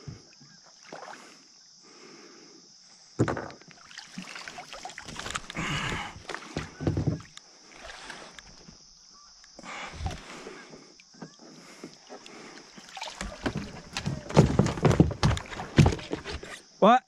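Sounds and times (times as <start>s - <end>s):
knocks against kayak: 3.2s - 3.6s
water splashing and dripping: 3.7s - 8.4s, 10.0s - 16.5s.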